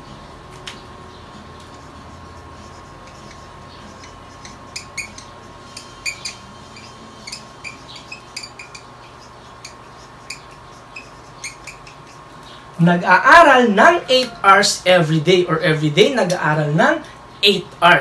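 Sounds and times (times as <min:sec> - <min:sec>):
marker squeaking: 0:01.6 - 0:12.6.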